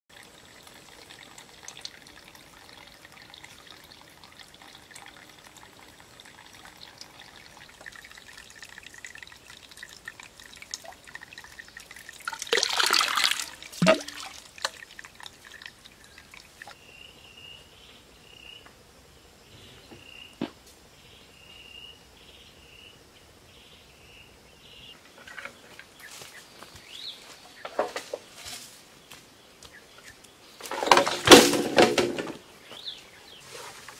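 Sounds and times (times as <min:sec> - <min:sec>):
water trickling from bamboo spouts: 0:00.1 - 0:16.8, 0:30.6 - 0:32.2
water rushing burst: 0:12.0 - 0:16.7.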